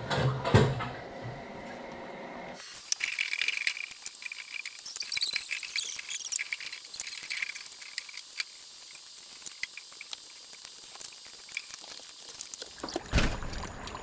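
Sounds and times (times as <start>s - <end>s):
food deep-frying in hot oil: 2.6s - 13.6s.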